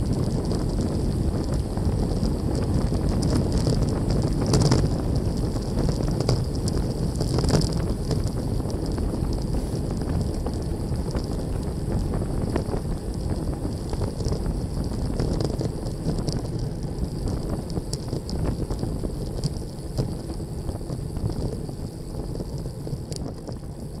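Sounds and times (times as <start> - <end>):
clicks and rattles from bumps: 0.0 - 11.4
bike tyres rumbling on road: 0.0 - 24.0
wind buffeting microphone: 0.0 - 24.0.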